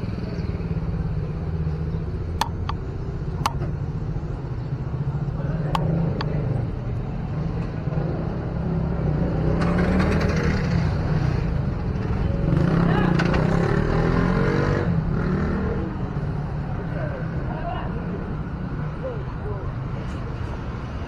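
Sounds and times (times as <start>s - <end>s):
low traffic rumble: 0.0s - 21.0s
sharp clicks: 2.4s - 2.8s.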